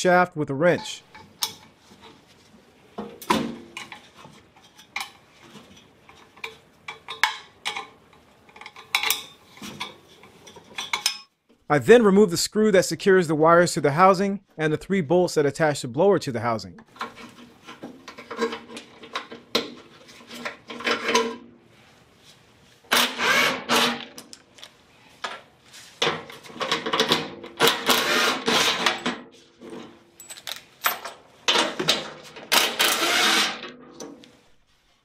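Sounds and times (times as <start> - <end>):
cordless driver whirring: 32.6 - 33.6.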